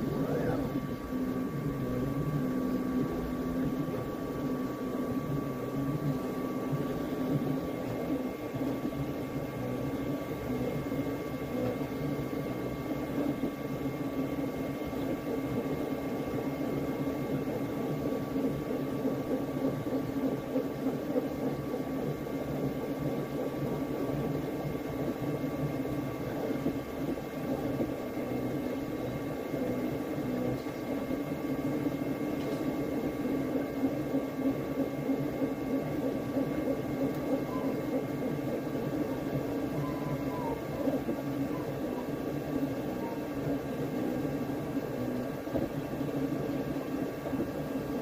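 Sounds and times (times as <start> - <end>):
printer motors and fans whirring: 0.0 - 48.0
thin whining tones: 36.6 - 44.8.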